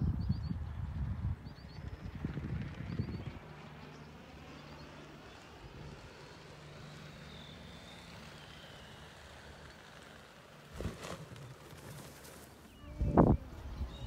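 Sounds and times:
skydiver skidding across grass: 10.7 - 12.7.

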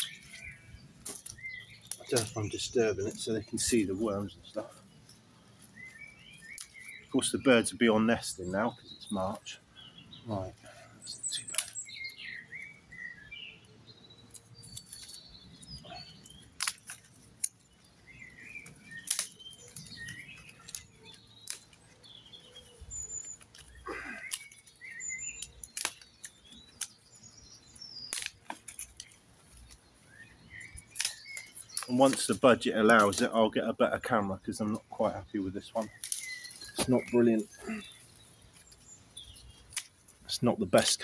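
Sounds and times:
pruning shears snipping: 0.0 - 4.8, 5.7 - 7.1, 11.2 - 12.2, 14.2 - 30.1, 30.7 - 33.5, 35.6 - 41.0
small birds chirping: 0.0 - 41.0.

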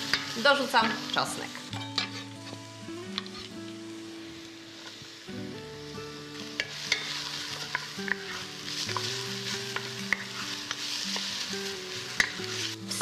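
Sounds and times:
onion sizzling in butter: 0.0 - 13.0
soft background music: 0.0 - 13.0
wooden spoon scraping pan: 1.8 - 2.6.

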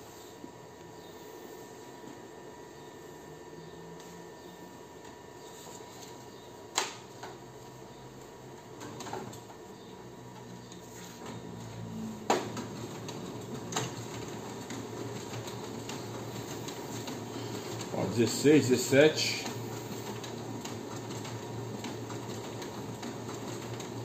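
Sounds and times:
copier mechanical hum: 0.0 - 24.0
sharp copier clicks: 6.7 - 7.4.

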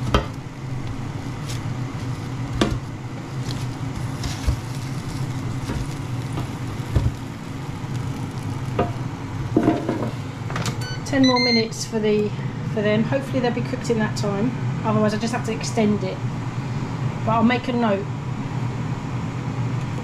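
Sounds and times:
food sizzling hiss: 0.0 - 10.5
air fryer fan hum: 0.0 - 20.0.

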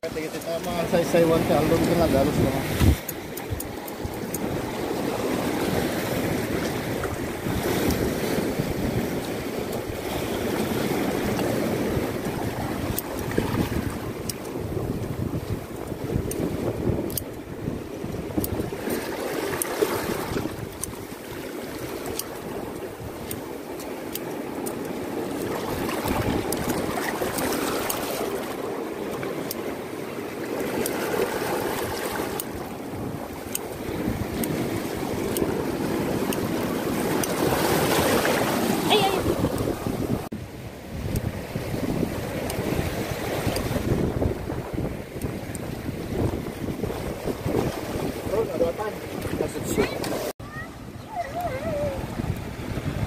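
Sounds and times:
surf washing over rocks: 0.0 - 53.0
wind buffeting microphone: 0.0 - 53.0.

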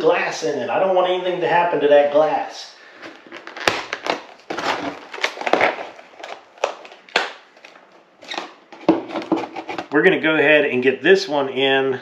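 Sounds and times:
packaging being cut and torn: 3.0 - 8.5.

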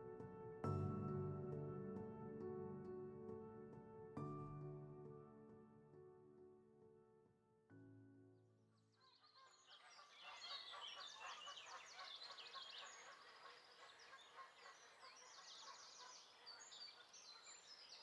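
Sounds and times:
music track: 0.0 - 6.4
songbirds singing: 9.0 - 18.0.

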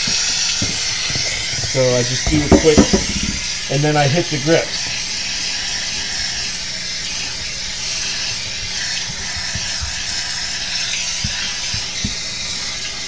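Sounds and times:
steam hissing: 0.0 - 13.0
steamer pump buzzing: 0.0 - 13.0
soft knocks: 2.3 - 3.5.

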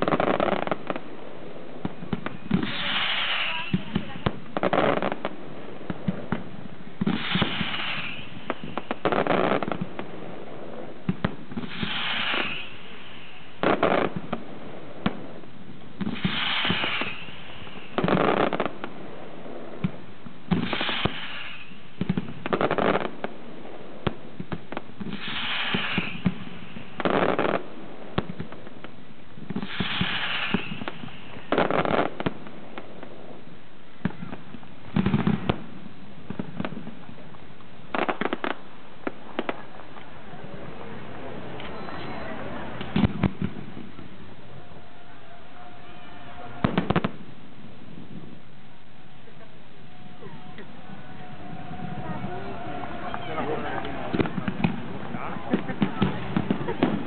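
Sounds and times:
firework crackles: 0.0 - 57.0
firework bursting bang: 1.8 - 15.4, 16.0 - 33.2, 34.0 - 37.0, 41.5 - 48.4, 49.8 - 57.0
firework launch hiss: 2.1 - 5.3, 6.0 - 10.1, 11.1 - 14.4, 16.0 - 18.9, 19.8 - 23.2, 24.5 - 28.4, 29.4 - 32.5.

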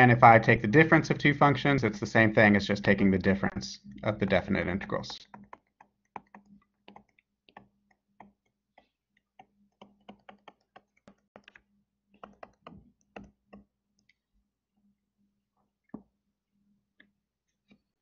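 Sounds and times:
low steady hum: 0.0 - 5.2
stylus tapping on tablet: 4.2 - 14.1.

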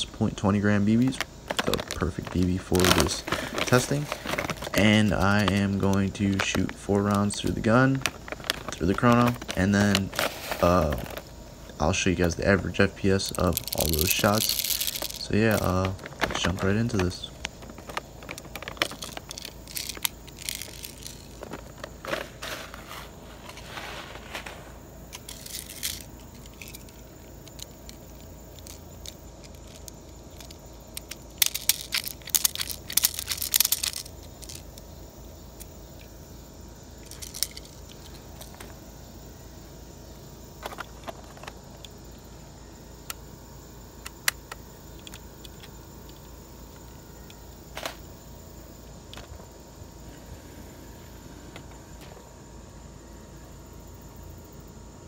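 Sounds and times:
plastic pellets rattling: 0.0 - 34.9, 36.9 - 38.8
plastic bag rustling: 1.0 - 11.4, 12.7 - 34.8, 37.0 - 38.8.

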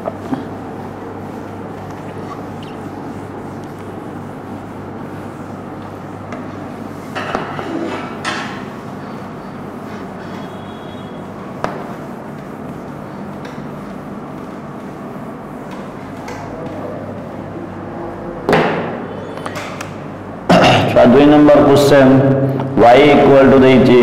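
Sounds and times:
cloth wiping whiteboard: 0.0 - 18.0
steady low hum: 0.0 - 24.0.

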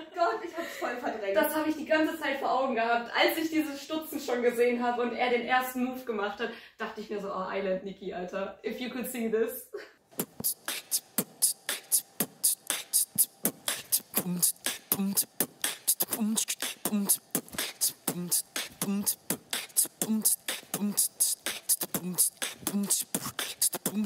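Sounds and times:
person beatboxing: 10.2 - 24.0.

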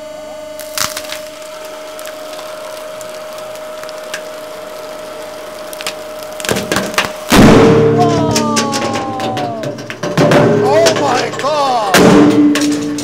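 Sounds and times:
frozen paper cracking: 0.6 - 7.8.

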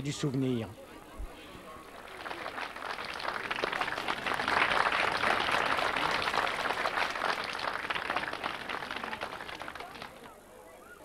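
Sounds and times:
crowd applauding: 1.8 - 10.3.

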